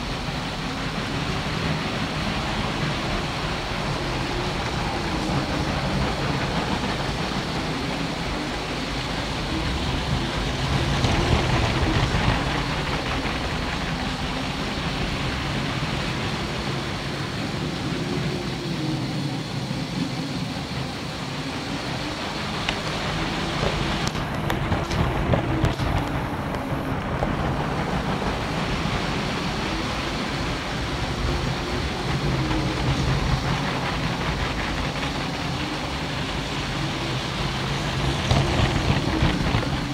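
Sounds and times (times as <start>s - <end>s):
wheels rattling on plastic track: 0.0s - 16.9s, 22.4s - 39.9s.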